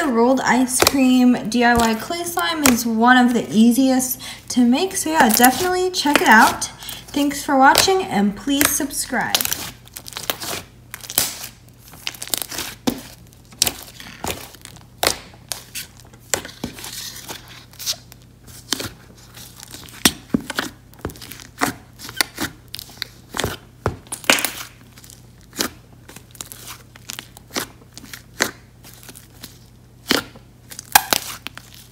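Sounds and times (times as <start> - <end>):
slime clicking and popping: 8.6 - 12.7.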